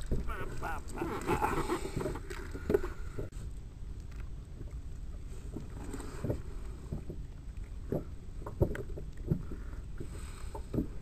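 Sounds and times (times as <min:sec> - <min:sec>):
wind and water rumble: 0:00.0 - 0:11.0.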